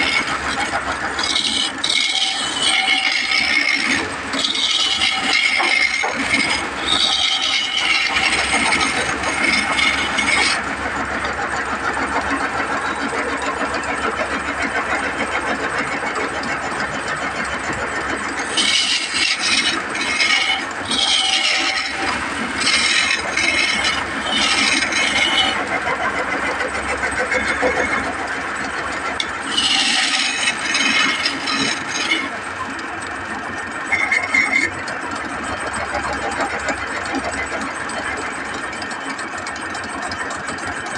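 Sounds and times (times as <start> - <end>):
turning tool scraping wood: 0.0 - 40.6
wood lathe running: 0.0 - 40.9.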